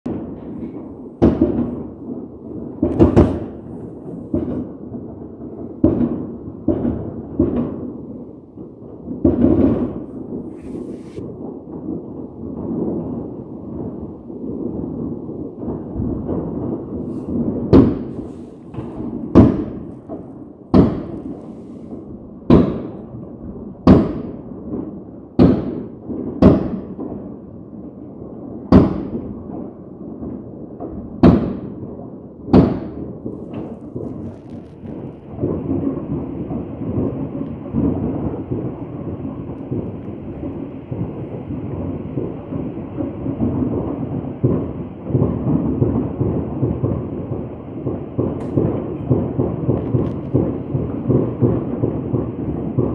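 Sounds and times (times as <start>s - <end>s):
fireworks bangs: 0.1s - 52.9s
low rumble: 16.1s - 22.4s, 33.3s - 42.4s.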